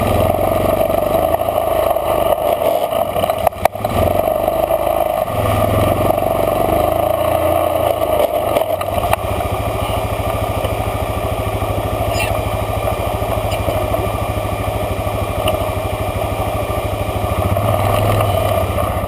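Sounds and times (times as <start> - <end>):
off-road vehicle engine running: 0.0 - 19.0.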